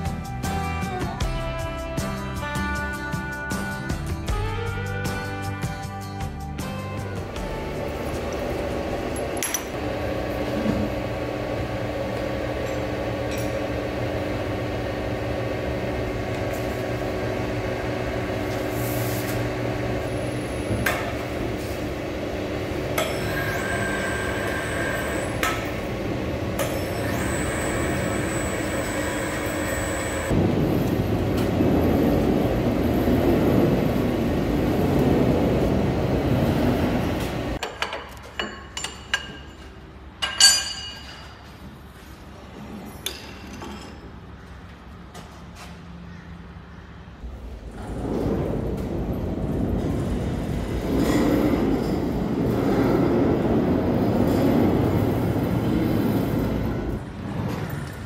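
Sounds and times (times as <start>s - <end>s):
heavy shop machinery humming: 0.0s - 58.0s
high ringing tones: 22.9s - 25.6s, 26.6s - 30.3s
sharp metal clanks: 40.2s - 41.4s.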